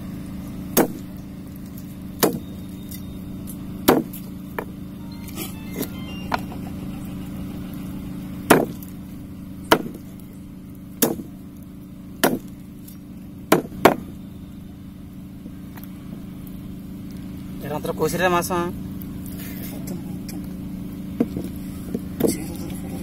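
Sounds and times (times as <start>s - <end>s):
steady low hum: 0.0s - 17.6s, 18.3s - 23.0s
cleaver chopping on wooden board: 0.8s - 1.0s, 2.2s - 2.4s, 3.8s - 4.7s, 8.5s - 8.8s, 9.7s - 10.0s, 11.0s - 11.3s, 12.2s - 12.5s, 13.5s - 14.0s.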